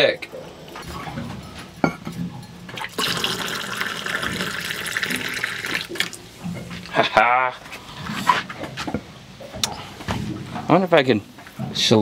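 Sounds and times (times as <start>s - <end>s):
water running into a mug: 2.8s - 6.2s.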